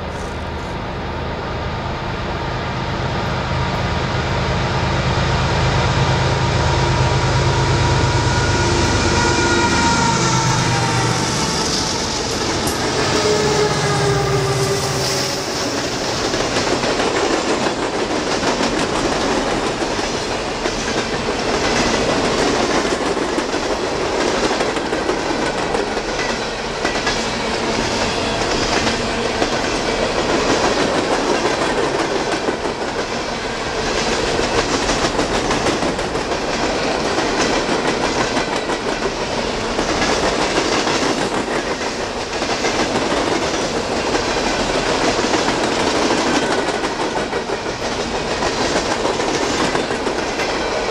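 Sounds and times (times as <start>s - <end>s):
train wheels rumbling on rails: 0.0s - 50.9s.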